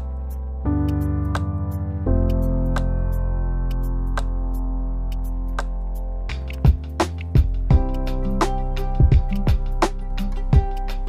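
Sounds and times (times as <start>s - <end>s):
light ticks keeping beat: 3.8s - 11.0s.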